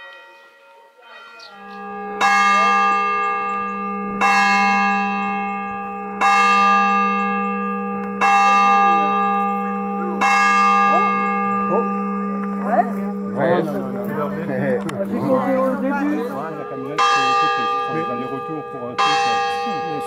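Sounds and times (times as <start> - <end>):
church bell tolling: 0.0 - 20.0.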